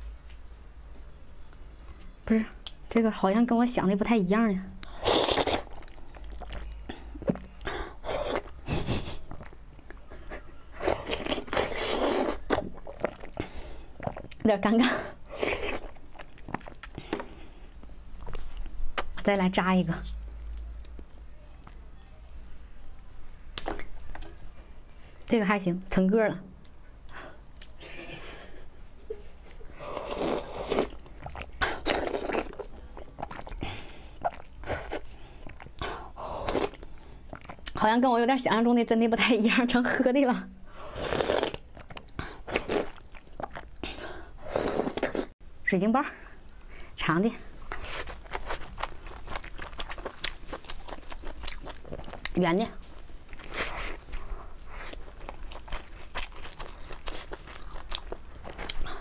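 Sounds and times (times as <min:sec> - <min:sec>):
wet eating sounds: 0:04.8 - 0:19.2, 0:26.6 - 0:37.8, 0:40.9 - 0:45.4, 0:47.6 - 0:59.0
woman slurping and chewing: 0:10.8 - 0:14.2, 0:29.9 - 0:35.1, 0:40.9 - 0:41.6.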